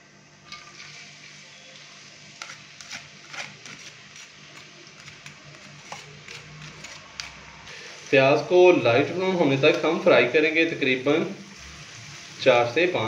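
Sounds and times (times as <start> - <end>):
wooden spoon tapping and scraping: 2.4 - 7.4
faint steady hiss: 7.7 - 13.0.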